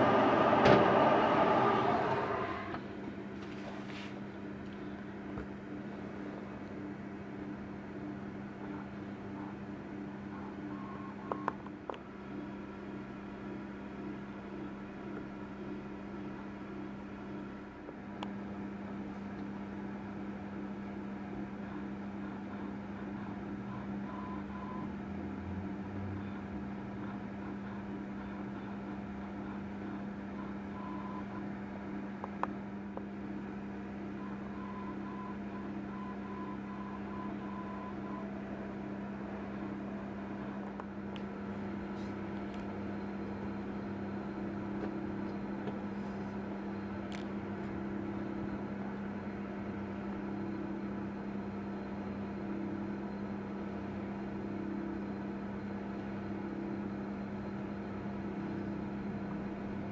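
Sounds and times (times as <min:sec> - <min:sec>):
kitchen appliance humming: 0:00.0 - 0:03.2.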